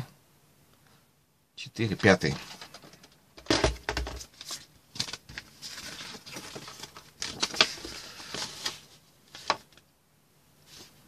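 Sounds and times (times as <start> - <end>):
paper pages rustling: 4.0 - 9.8.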